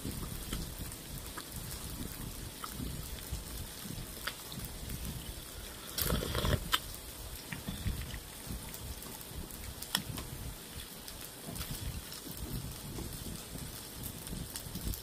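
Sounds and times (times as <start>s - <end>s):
person chewing: 2.5s - 3.2s, 5.6s - 8.4s.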